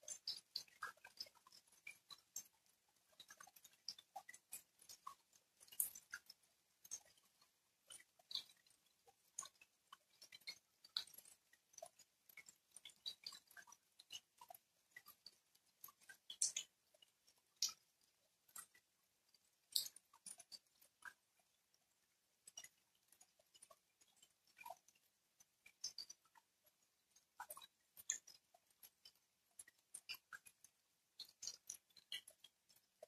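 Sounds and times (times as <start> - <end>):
raindrops tapping and splashing: 3.1 - 16.7, 19.4 - 21.1, 31.2 - 32.8.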